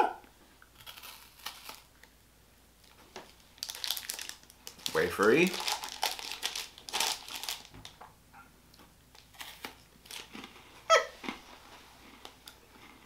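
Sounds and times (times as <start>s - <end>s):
candy wrapper crinkling: 0.7s - 2.1s, 2.8s - 8.0s, 9.2s - 10.6s.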